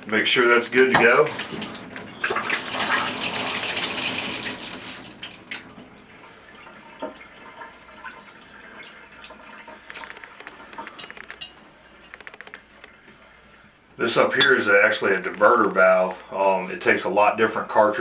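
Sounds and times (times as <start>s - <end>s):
water running from tub spout: 0.4s - 12.0s
small ticks and drips: 5.1s - 13.7s.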